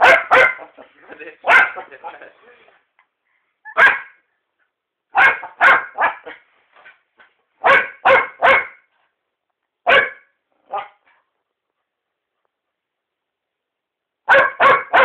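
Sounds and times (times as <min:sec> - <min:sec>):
dog barking: 0:00.0 - 0:02.0, 0:03.7 - 0:04.2, 0:05.1 - 0:06.4, 0:07.6 - 0:08.9, 0:09.8 - 0:11.1, 0:14.3 - 0:15.0.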